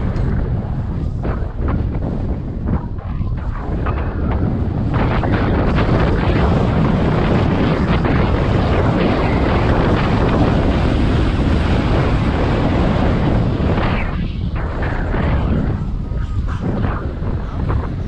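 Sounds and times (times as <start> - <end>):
wind roar on microphone: 0.0 - 18.0.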